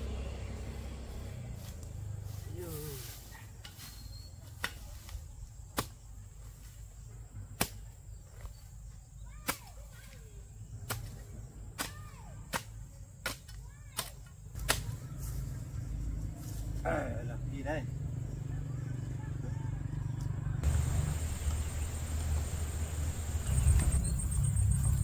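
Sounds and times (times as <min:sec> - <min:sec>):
steady low rumble: 0:20.4 - 0:25.0.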